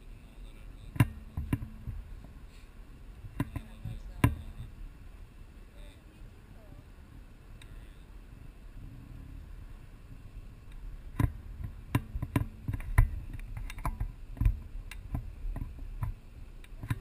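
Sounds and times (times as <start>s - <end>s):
wind rumble on microphone: 0.0s - 17.0s
handling clicks and knocks: 0.9s - 2.0s.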